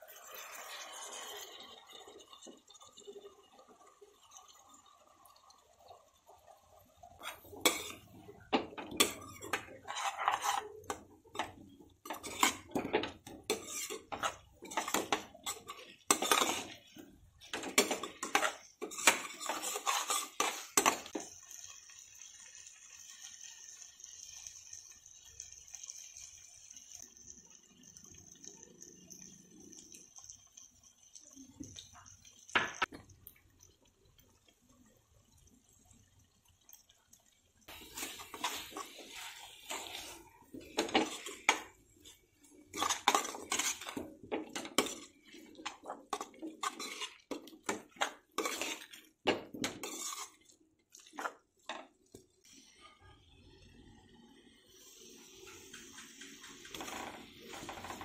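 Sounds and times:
spatula scraping a pan: 0:07.0 - 0:21.3, 0:37.7 - 0:51.9.

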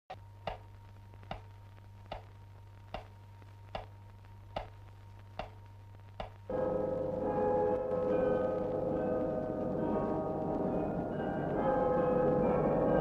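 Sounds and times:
clock ticking: 0:00.1 - 0:03.9, 0:04.5 - 0:06.7
low steady hum: 0:00.1 - 0:13.0.

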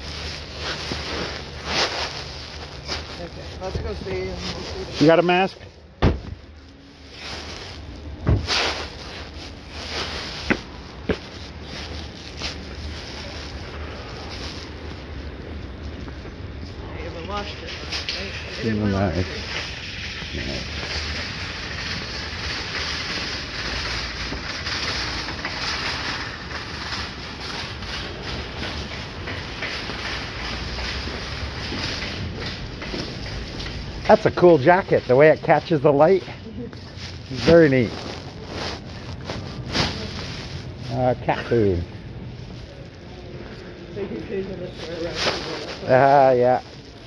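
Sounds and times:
footsteps on asphalt: 0:00.0 - 0:16.8, 0:27.5 - 0:40.9.

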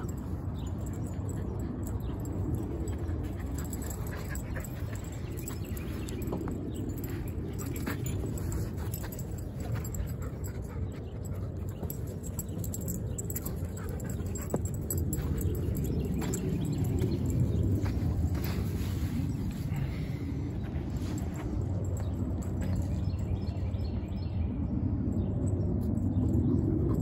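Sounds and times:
dog panting: 0:00.8 - 0:17.8
dog paws on dry dirt: 0:02.2 - 0:23.4.

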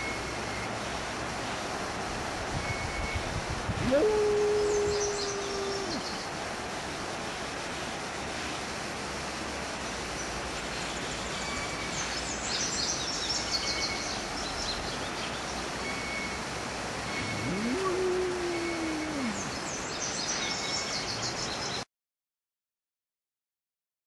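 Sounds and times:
outdoor background hiss: 0:00.0 - 0:21.9
dog howling: 0:03.8 - 0:06.2, 0:17.2 - 0:19.6
birds chirping and whistling: 0:04.5 - 0:06.2.

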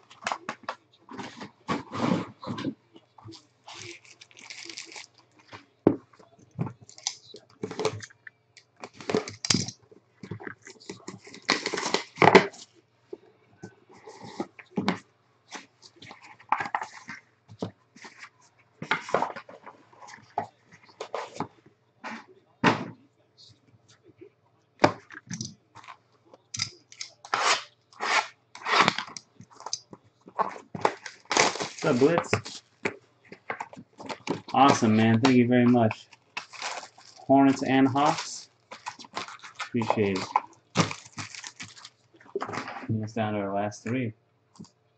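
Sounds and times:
shrink-wrap crinkling and tearing: 0:03.7 - 0:05.5, 0:10.8 - 0:12.2, 0:30.4 - 0:32.7, 0:33.4 - 0:42.8.

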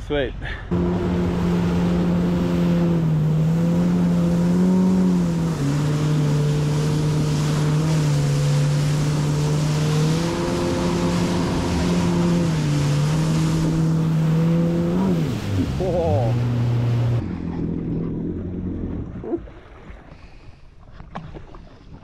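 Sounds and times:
jet ski engine: 0:00.4 - 0:20.4
water spray rushing: 0:00.7 - 0:17.2.

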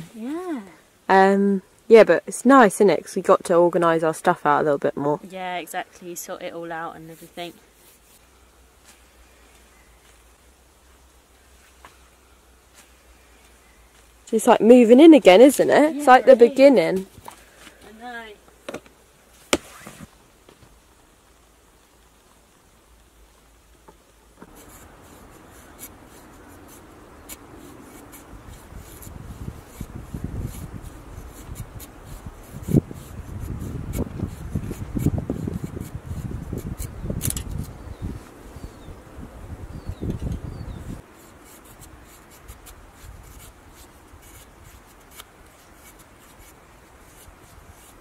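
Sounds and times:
knife scraping wood: 0:24.4 - 0:37.8, 0:40.1 - 0:48.0.

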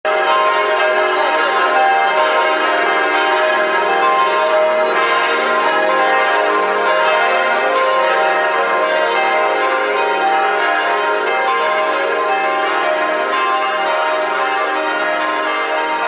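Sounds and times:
church bells pealing: 0:00.1 - 0:16.0.

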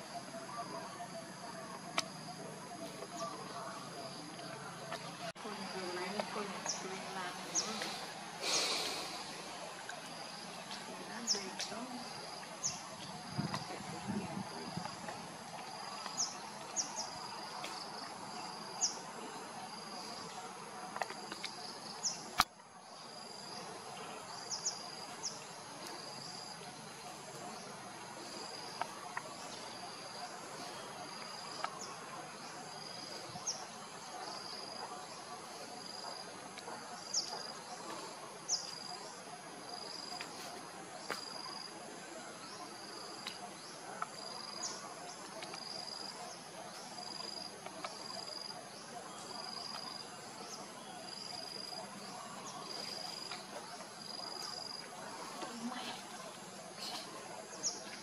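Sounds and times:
insect chirps: 0:00.0 - 0:58.0
insects trilling: 0:00.0 - 0:58.0
outdoor hiss: 0:05.4 - 0:12.1.

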